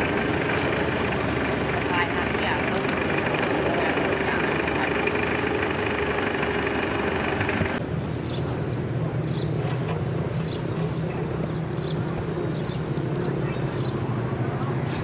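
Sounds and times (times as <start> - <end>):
low idling hum: 0.0 - 9.4
diesel truck engines running: 0.0 - 15.0.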